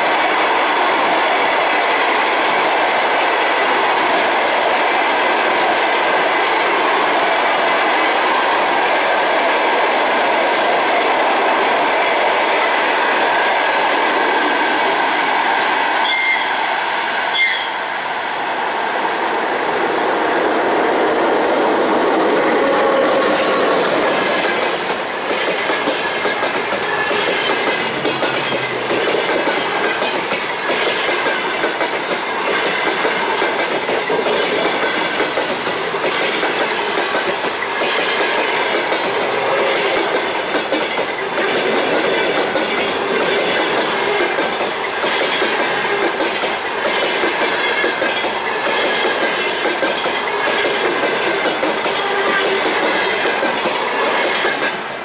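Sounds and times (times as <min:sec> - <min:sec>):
rolling rail noise: 0:00.0 - 0:55.0
train wheels clacking over rail joints: 0:22.3 - 0:54.9.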